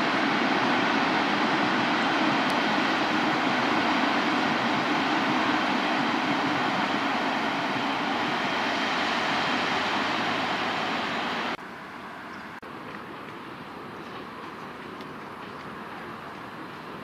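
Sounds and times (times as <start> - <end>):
train wheels rushing on rails: 0.0 - 11.6
rail rumble: 0.0 - 17.0.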